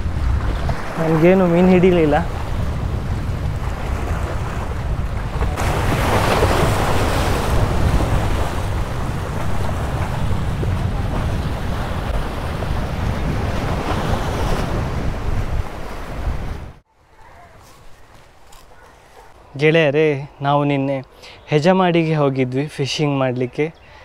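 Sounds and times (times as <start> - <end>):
wind buffeting microphone: 0.0 - 18.8
sea waves splashing on concrete: 3.4 - 16.8.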